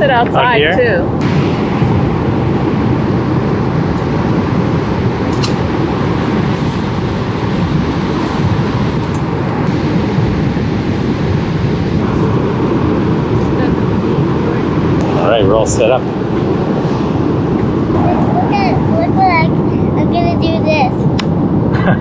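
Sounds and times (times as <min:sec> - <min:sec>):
ocean surf roaring: 0:00.0 - 0:22.0.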